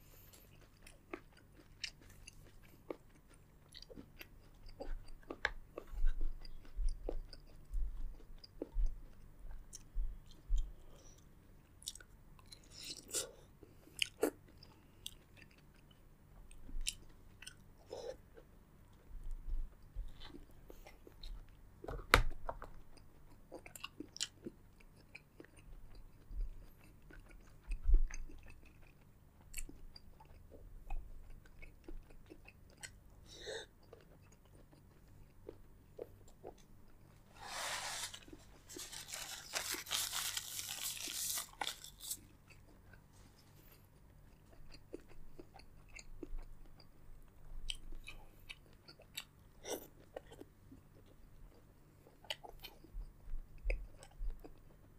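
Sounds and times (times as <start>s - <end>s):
chewing and crunching shellfish: 0.1s - 19.1s, 22.4s - 37.2s, 38.3s - 54.9s.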